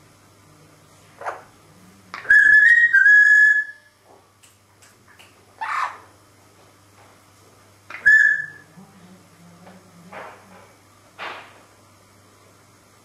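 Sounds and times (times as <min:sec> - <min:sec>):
parrot raspy call: 0:02.2 - 0:03.8, 0:05.6 - 0:06.1, 0:07.9 - 0:08.6
parrot whistling long note: 0:02.2 - 0:03.9, 0:08.0 - 0:08.6.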